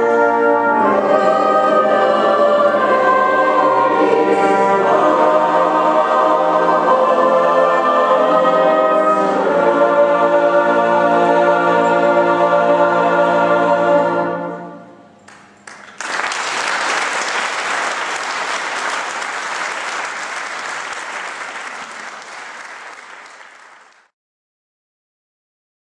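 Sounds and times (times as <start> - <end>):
brass band and choir chord: 0.0 - 15.2
audience applause: 15.3 - 24.1.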